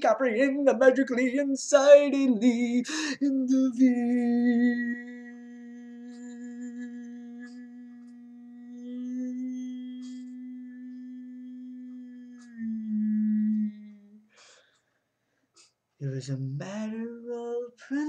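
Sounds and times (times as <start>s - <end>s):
man singing long note: 2.4s - 14.2s.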